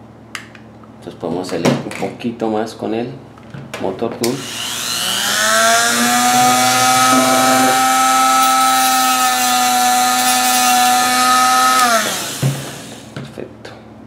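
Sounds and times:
rotary tool whining: 0:04.4 - 0:13.1.

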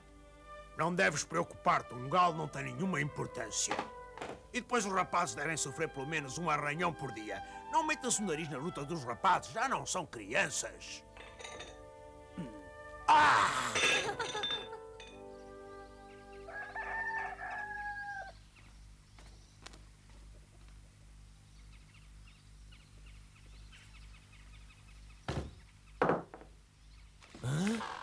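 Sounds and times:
soft held music: 0:00.0 - 0:18.0
man laughing loudly: 0:12.4 - 0:14.8
rooster crowing: 0:16.2 - 0:18.4.

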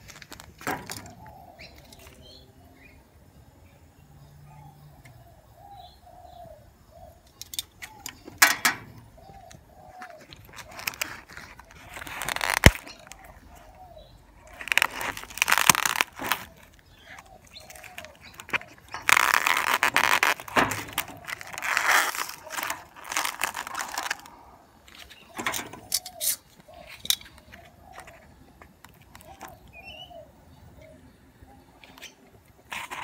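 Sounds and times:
cling film crinkling: 0:00.0 - 0:02.2, 0:07.9 - 0:29.5
dove cooing: 0:04.5 - 0:15.2, 0:15.9 - 0:32.3.

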